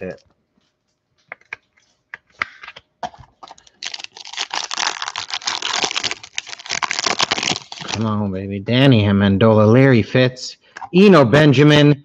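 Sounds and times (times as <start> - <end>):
foil wrapper crinkling: 3.4 - 8.0.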